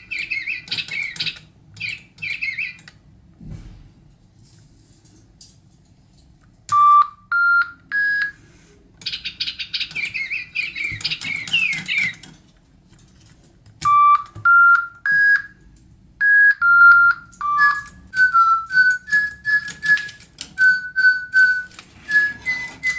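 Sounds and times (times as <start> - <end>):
synthesized bird chirping: 0.0 - 2.8, 9.0 - 12.2
toy beeping notes: 6.7 - 8.4, 13.8 - 15.6, 16.2 - 22.9.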